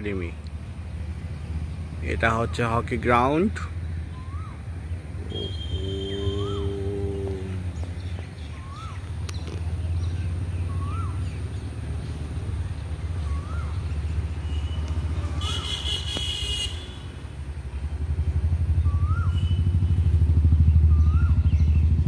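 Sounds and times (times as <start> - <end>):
motorcycle engine rumbling: 0.0 - 22.0
bird chirping: 3.8 - 15.8.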